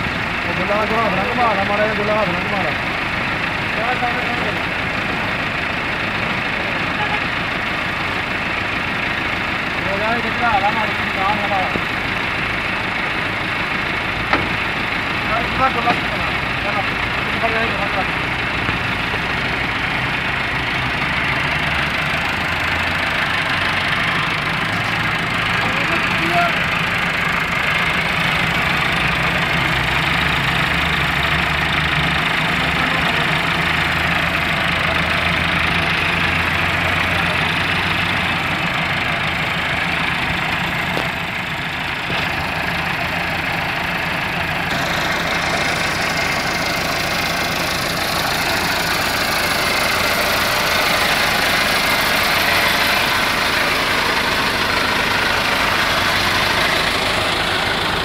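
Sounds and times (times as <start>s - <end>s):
tractor diesel engine running: 0.0s - 58.0s
thresher rushing drone: 43.2s - 58.0s.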